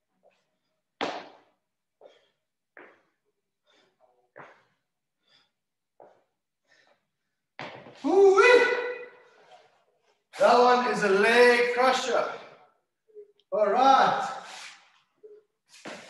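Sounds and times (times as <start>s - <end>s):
person breathing hard: 2.0s - 7.5s.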